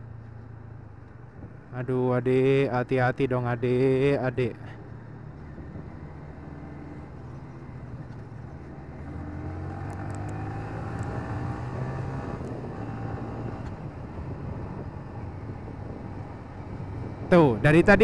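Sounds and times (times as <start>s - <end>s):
motorcycle engine accelerating: 5.2s - 17.3s.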